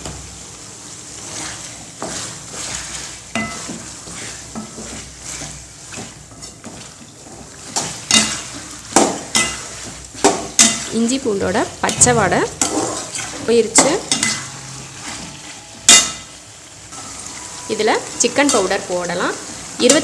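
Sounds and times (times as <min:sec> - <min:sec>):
frying sizzle: 0:00.0 - 0:20.0
wooden spatula scraping pan: 0:01.1 - 0:16.2
metal clanks against pan: 0:03.3 - 0:03.8, 0:07.8 - 0:10.9, 0:11.8 - 0:14.5, 0:15.9 - 0:16.3.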